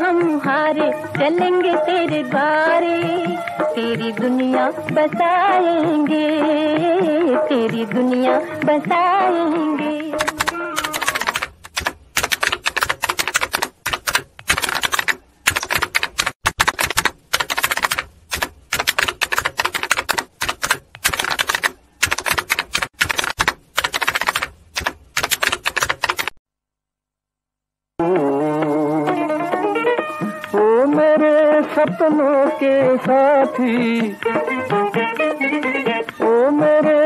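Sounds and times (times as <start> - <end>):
typewriter keystroke clicks: 10.2 - 26.4.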